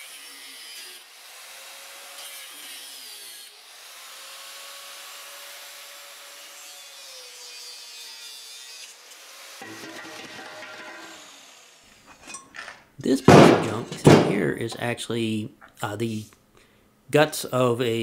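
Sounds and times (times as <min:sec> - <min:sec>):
angle grinder cutting steel pipe: 0:00.0 - 0:12.5.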